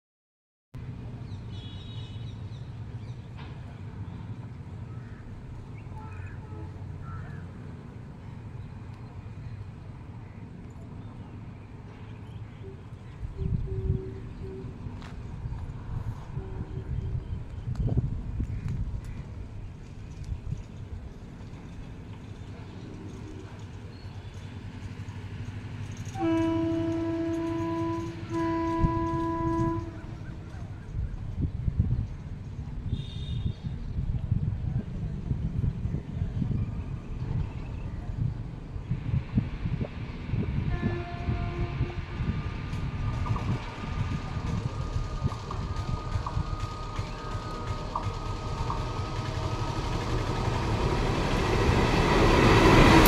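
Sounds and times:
train rumble: 0.8s - 53.0s
train horn blasts: 16.2s - 17.2s, 26.0s - 30.3s, 32.9s - 33.7s, 40.6s - 42.4s
steady low rumble: 33.8s - 53.0s.

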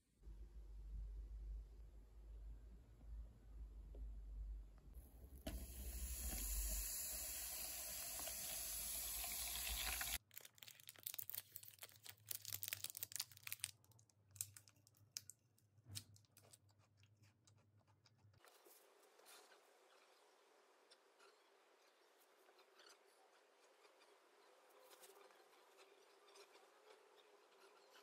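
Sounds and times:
water pouring into a plastic cup: 5.5s - 10.2s
wrapper tearing and crinkling: 10.2s - 15.0s.

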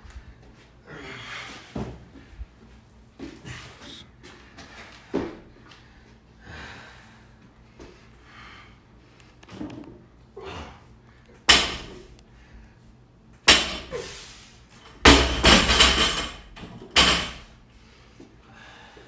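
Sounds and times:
weight plates rattling: 15.0s - 17.5s.

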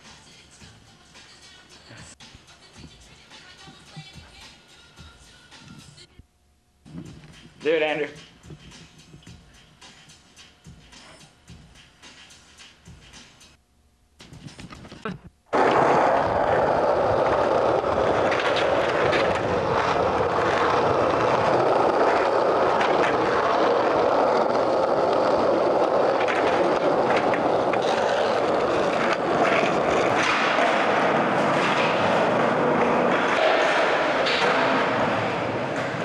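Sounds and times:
skateboard wheels rolling on concrete: 14.2s - 36.0s.

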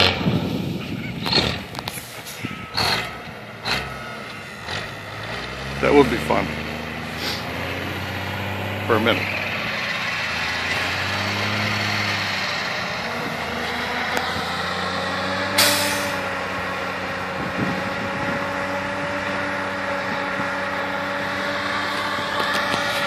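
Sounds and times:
truck engine running: 0.0s - 23.0s.

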